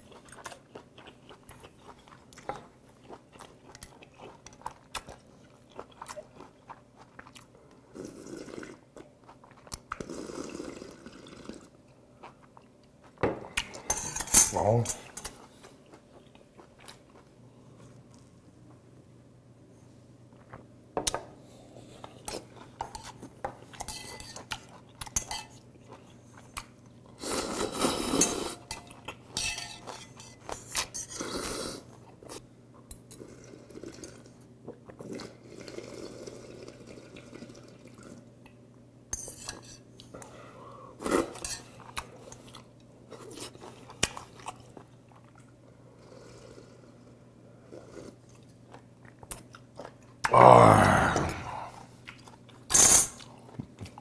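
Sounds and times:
chewing: 0.0s - 13.9s, 15.0s - 18.3s, 41.3s - 50.3s, 51.8s - 54.0s
slurping broth: 7.9s - 8.9s, 9.9s - 11.8s, 27.2s - 28.6s, 31.0s - 31.9s, 35.0s - 38.3s, 45.9s - 48.5s.

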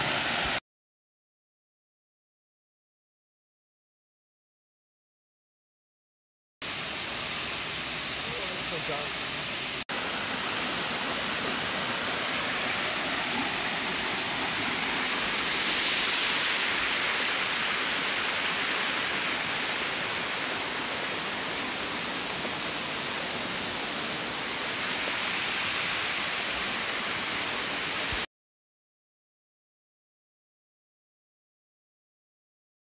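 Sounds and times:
waterfall and stream rushing: 0.0s - 0.6s, 6.6s - 28.3s.

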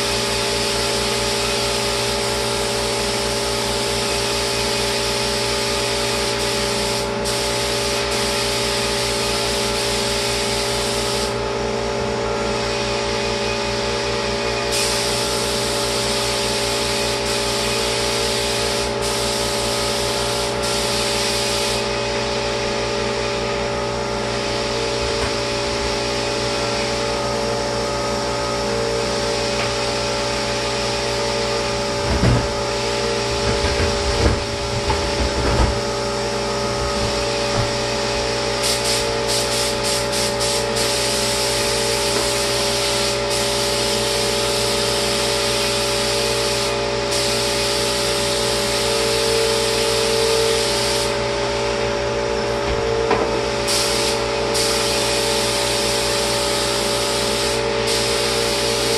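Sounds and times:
spray gun hissing: 0.0s - 11.4s, 14.7s - 22.6s, 36.2s - 51.6s, 53.4s - 58.9s
sprayer motor hum: 14.6s - 58.9s.

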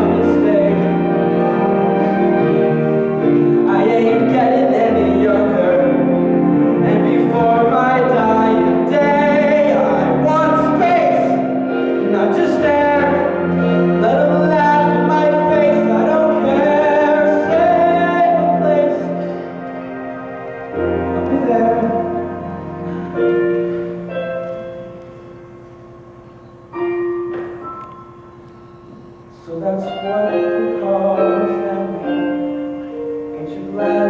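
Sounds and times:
young man singing show tune: 0.0s - 1.9s, 3.5s - 19.5s, 21.2s - 22.6s, 29.3s - 34.0s
instrumental accompaniment: 0.0s - 34.0s.

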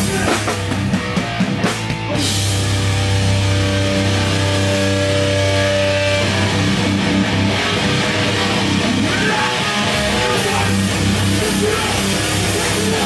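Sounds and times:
hardcore band playing live: 0.0s - 13.0s
electric guitar chord ringing: 2.2s - 12.7s.

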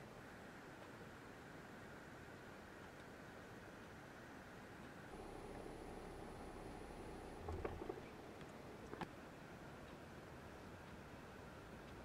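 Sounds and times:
faint steady hum: 0.0s - 12.0s
high-pitched whine: 5.1s - 8.5s.

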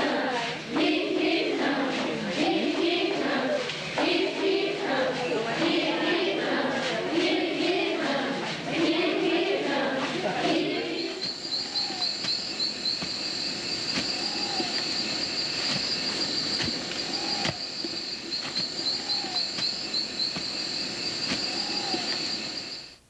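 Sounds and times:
insects buzzing chorus: 0.0s - 23.0s
low rising and falling call: 10.6s - 22.9s.

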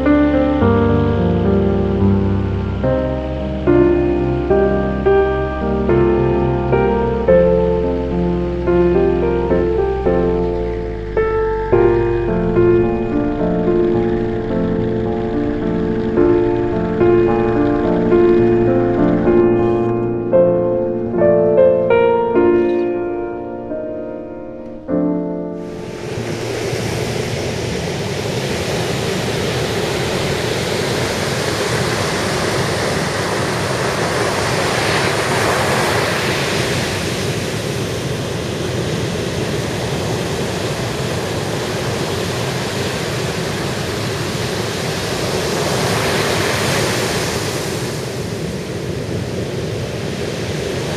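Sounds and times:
surf breaking on beach: 0.0s - 23.4s, 25.6s - 50.9s
piano music: 0.0s - 28.5s.

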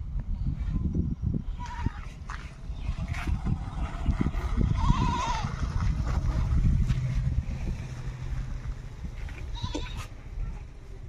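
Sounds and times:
low rumble: 0.0s - 11.0s
livestock bleating: 9.5s - 10.1s.

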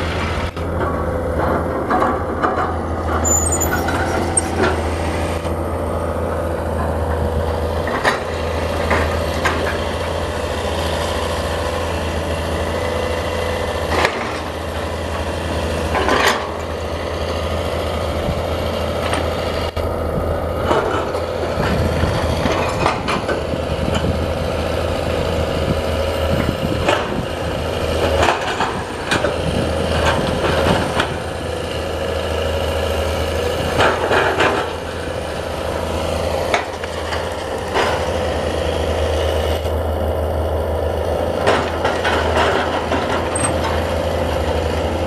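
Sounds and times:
excavator diesel engine running: 0.0s - 45.0s.

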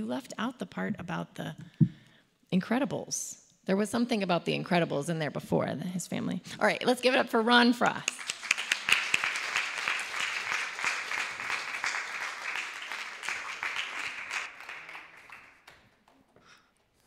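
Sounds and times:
audience applauding: 8.1s - 16.5s.

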